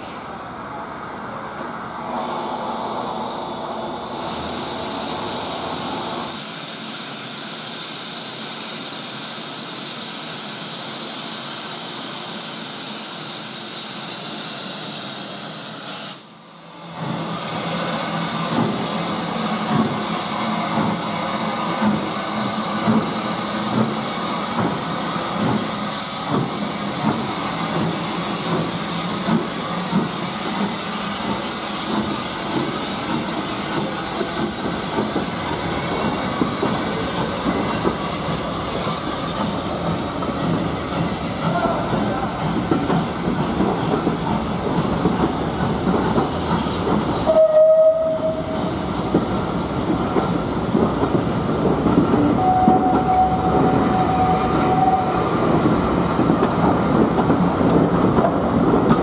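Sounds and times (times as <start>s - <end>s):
steam hissing: 4.0s - 58.9s
steam locomotive exhaust beats: 17.0s - 59.0s.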